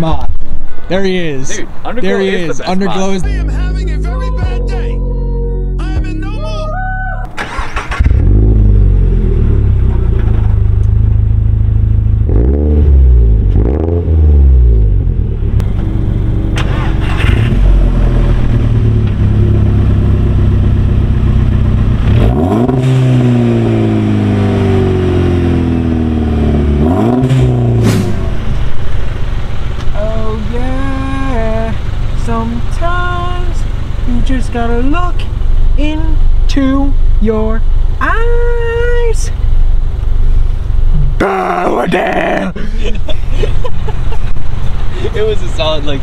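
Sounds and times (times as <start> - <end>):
car exhaust idling and revving: 0.4 - 7.4, 8.0 - 46.0.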